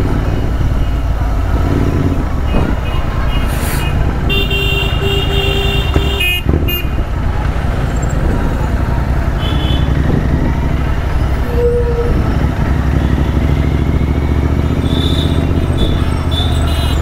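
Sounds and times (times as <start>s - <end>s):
motorcycle engine rumble: 0.0s - 17.0s.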